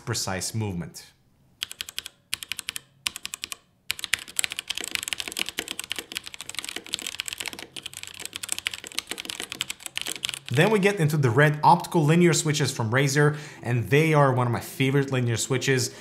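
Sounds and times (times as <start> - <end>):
mechanical keyboard typing: 1.6 - 10.8.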